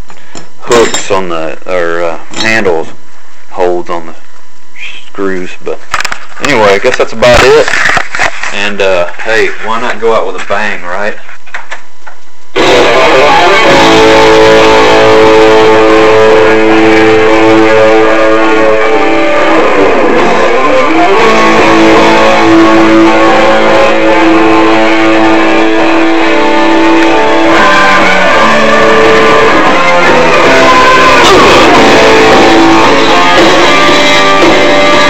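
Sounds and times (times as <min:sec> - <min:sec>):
loud electric guitar rock music: 0:12.6 - 0:35.0.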